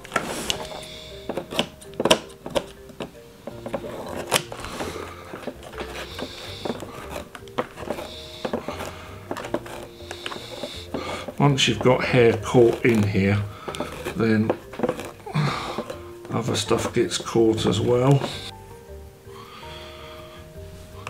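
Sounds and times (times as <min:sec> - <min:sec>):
clicks knocks and rubbing: 0:00.0 - 0:18.5
soft background music: 0:00.0 - 0:21.0.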